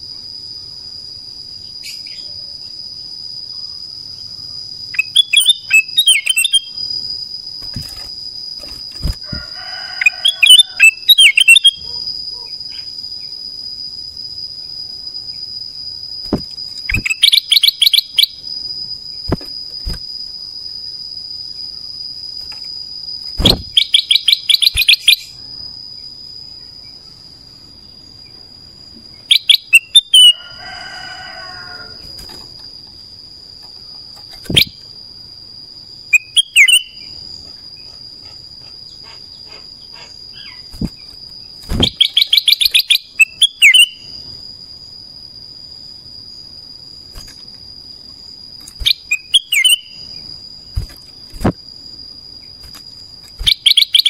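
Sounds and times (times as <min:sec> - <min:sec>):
bird singing: 0:01.6 - 0:02.7, 0:03.4 - 0:08.0, 0:09.8 - 0:13.3, 0:14.6 - 0:20.0, 0:23.2 - 0:27.3, 0:29.1 - 0:30.5, 0:33.7 - 0:35.0, 0:36.1 - 0:37.9, 0:38.9 - 0:41.1, 0:41.7 - 0:44.2, 0:48.8 - 0:50.4, 0:53.4 - 0:54.0.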